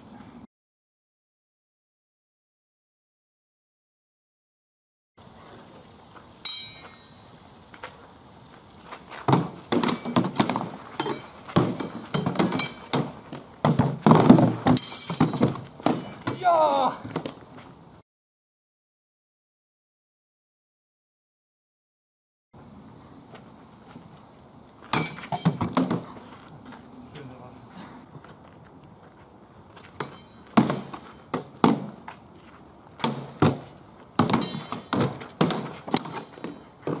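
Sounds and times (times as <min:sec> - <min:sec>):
metallic clinks: 0:06.4 - 0:07.3
shields knocking together: 0:09.3 - 0:17.4
swords striking shields: 0:09.3 - 0:17.4, 0:24.9 - 0:26.1, 0:30.0 - 0:32.0, 0:33.0 - 0:37.0.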